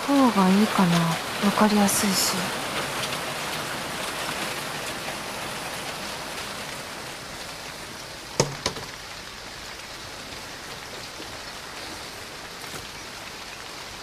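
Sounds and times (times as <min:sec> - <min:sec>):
steady rain falling: 0:00.0 - 0:14.0
sharp knocks: 0:08.4 - 0:09.0.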